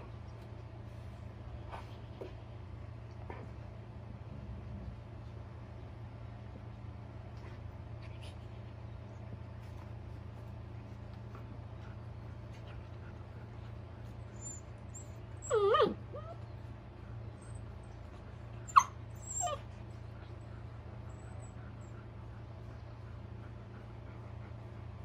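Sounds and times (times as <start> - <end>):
steady low hum: 0.0 - 25.0
dog whining: 14.3 - 16.5, 18.6 - 19.8
dog yipping: 14.4 - 16.4, 18.7 - 19.6.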